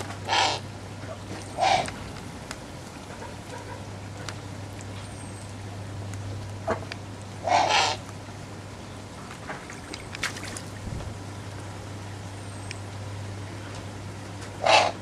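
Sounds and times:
owl splashing in water: 9.4 - 11.2.

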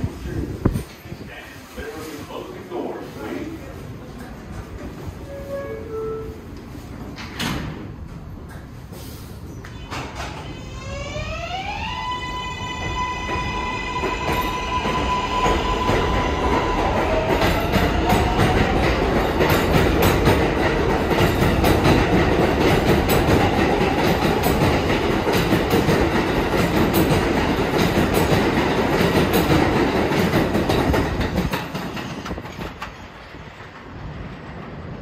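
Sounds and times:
train wheels clattering over rail joints: 15.5 - 35.0.

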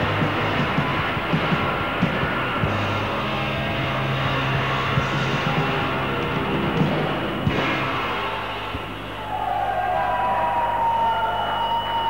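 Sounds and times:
live rock band playing: 0.0 - 9.1.

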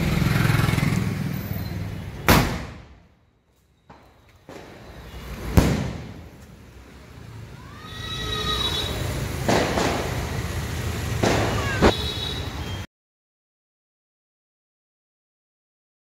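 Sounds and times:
firework shell bang: 2.3 - 3.0, 5.5 - 6.3
firework sharp cracks: 4.0 - 6.4, 9.3 - 12.1.

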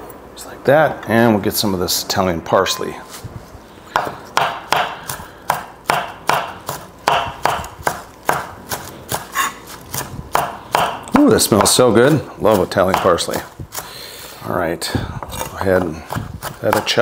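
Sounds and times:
knife chopping on wooden board: 4.0 - 13.9, 15.2 - 17.0.

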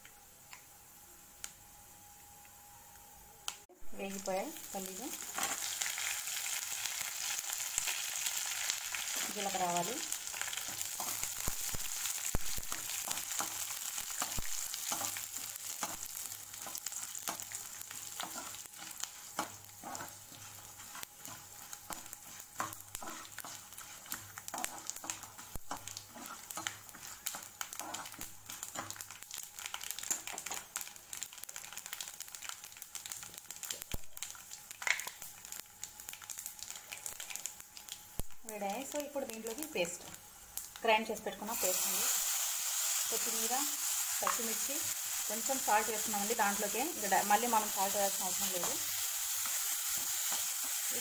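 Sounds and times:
seeds sizzling in hot oil: 0.0 - 51.0
crackles in oil: 4.2 - 51.0
spatula scraping pan: 18.2 - 28.9.

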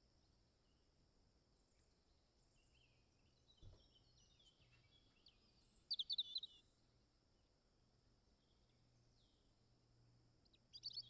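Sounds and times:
myna bird chirps and whistles: 3.6 - 6.6.

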